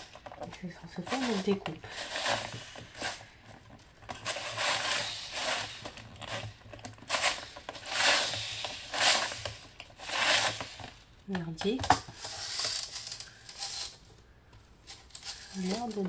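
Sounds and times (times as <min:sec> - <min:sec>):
circle cutter scraping paper: 0:01.1 - 0:03.2, 0:04.2 - 0:06.5, 0:07.1 - 0:10.8.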